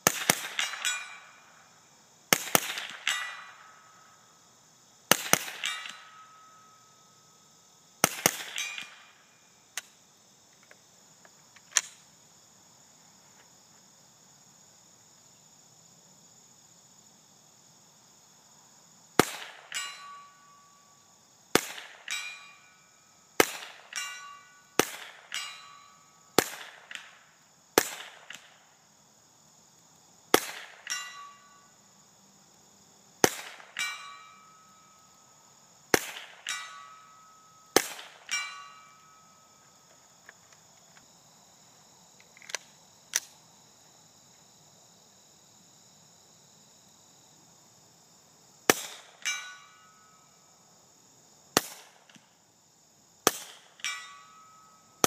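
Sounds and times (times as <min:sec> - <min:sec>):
suppressed rifle shots: 0:00.0 - 0:01.2, 0:02.3 - 0:03.6, 0:05.1 - 0:06.1, 0:08.0 - 0:09.0
crickets chirping: 0:00.0 - 0:55.0
steel target plate ringing: 0:00.6 - 0:01.8, 0:03.0 - 0:04.3, 0:05.5 - 0:07.2, 0:08.5 - 0:09.3, 0:19.7 - 0:20.9, 0:22.0 - 0:23.2, 0:23.9 - 0:26.3, 0:30.8 - 0:31.8, 0:33.6 - 0:35.3, 0:36.4 - 0:39.6, 0:49.2 - 0:50.4, 0:53.8 - 0:55.0.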